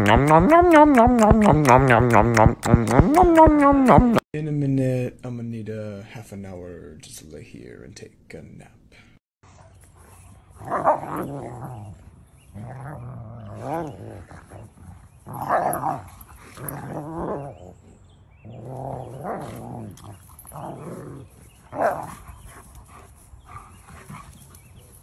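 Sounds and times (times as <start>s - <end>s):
dogs growling: 10.6s - 24.4s.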